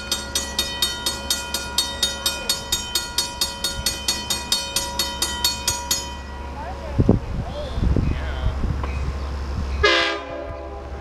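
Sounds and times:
crossing warning bell ringing: 0.0s - 7.0s.

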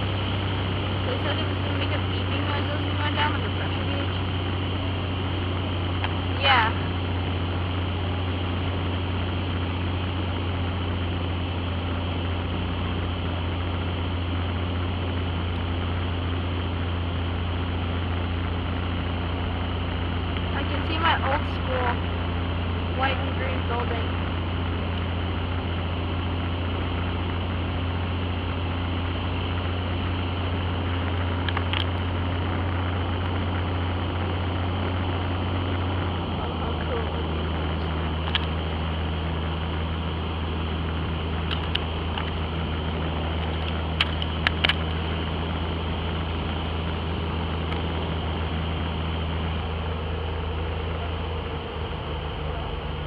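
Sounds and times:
airplane engine drone: 0.0s - 53.0s.

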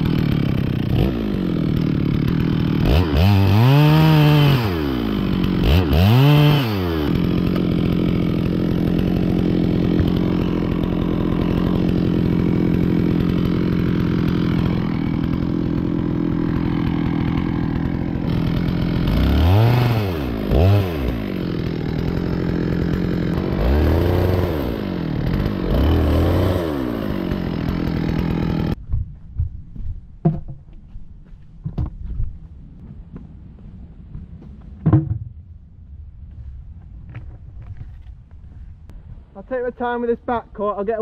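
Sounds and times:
chainsaw cutting and revving: 0.0s - 28.8s
sharp knocks: 34.6s - 35.4s.

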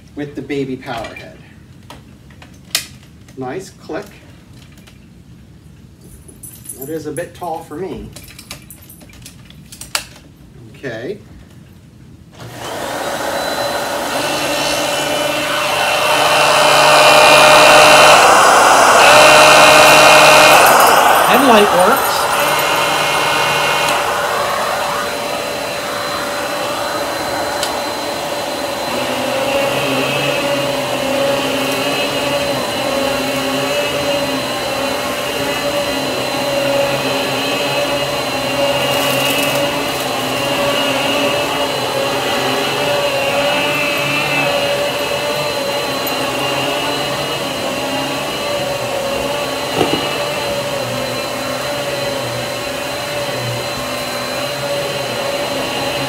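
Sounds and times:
vacuum cleaner on carpet: 12.4s - 56.0s.

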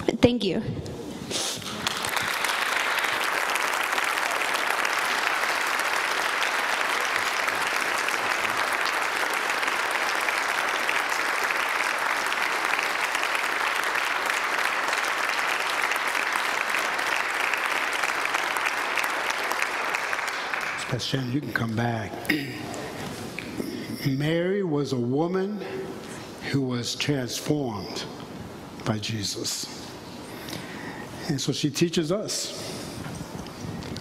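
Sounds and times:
congregation applauding: 1.6s - 23.5s.

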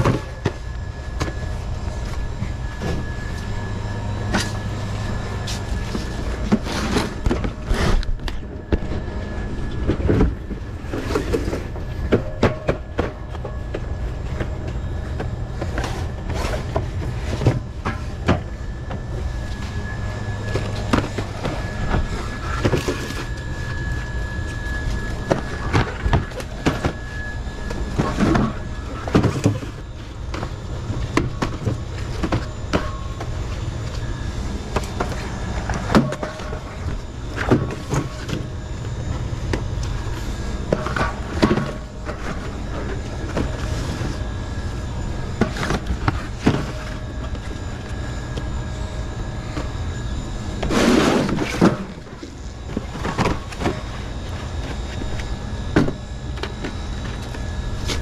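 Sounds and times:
low hum: 0.0s - 58.0s.

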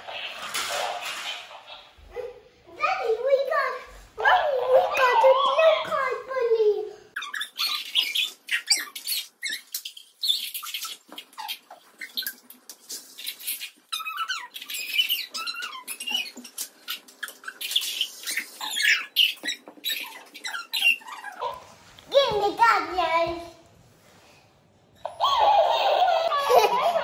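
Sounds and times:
toy high-pitched squeaky voice: 4.2s - 6.0s, 13.9s - 16.4s.

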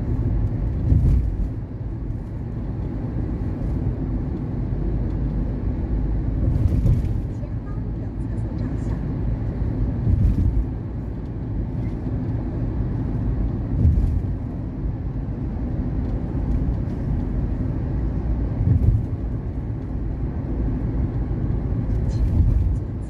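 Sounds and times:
road and engine rumble: 0.0s - 23.0s.

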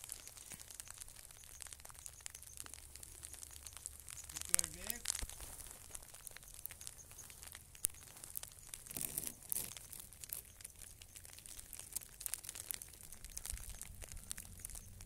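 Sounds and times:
freezing rain ticking on ice: 0.0s - 15.0s.

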